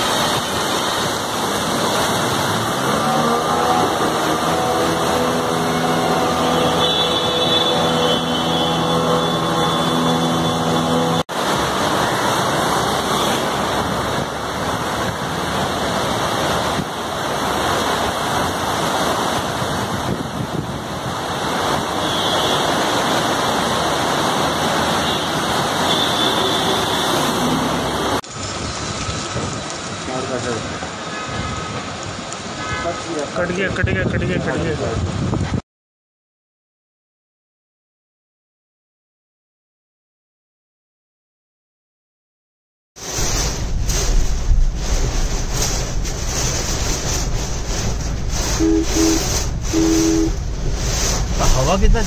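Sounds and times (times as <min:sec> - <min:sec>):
engine drone: 0:00.0 - 0:19.4, 0:43.1 - 0:52.0
motor traffic: 0:00.0 - 0:35.5, 0:43.0 - 0:52.0
rain on wet street: 0:00.0 - 0:35.6, 0:43.0 - 0:52.0.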